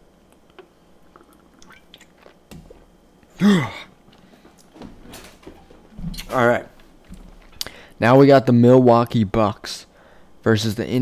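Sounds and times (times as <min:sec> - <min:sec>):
person chewing: 0:00.3 - 0:02.9.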